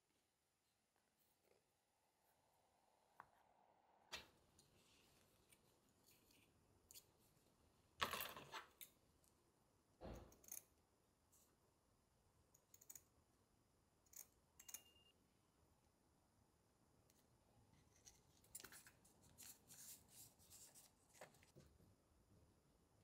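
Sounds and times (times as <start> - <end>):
tools and tiles clicking: 10.2 - 10.8, 12.6 - 13.2, 14.1 - 15.0.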